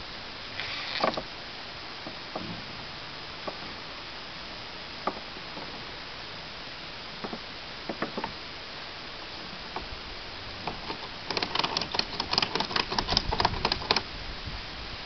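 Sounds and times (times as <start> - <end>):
ratchet buckle clicking: 10.8 - 14.0.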